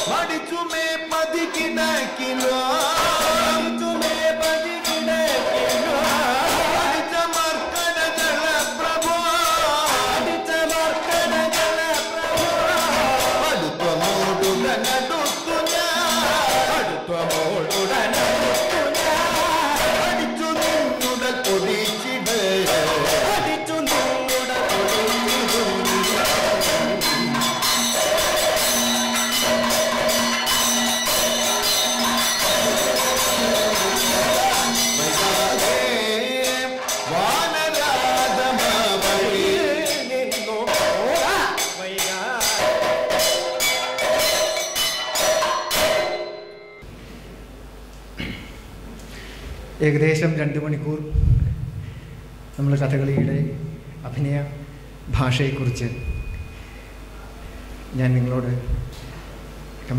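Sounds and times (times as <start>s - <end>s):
man singing long wavering notes: 0.0s - 27.4s, 32.4s - 42.7s
drum and cymbal strokes: 0.0s - 47.0s
metallic ringing gong: 23.9s - 37.3s, 37.9s - 46.9s, 55.3s - 56.8s.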